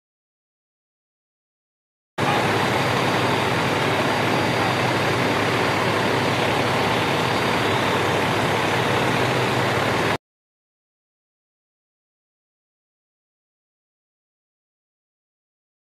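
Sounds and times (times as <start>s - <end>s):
heavy vehicle engine idling: 2.2s - 10.2s.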